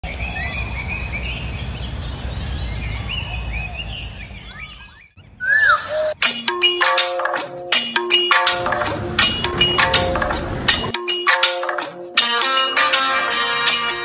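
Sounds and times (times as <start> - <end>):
birds chirping: 0.0 - 6.2
louder bird calls: 0.1 - 6.2
music: 6.2 - 14.0.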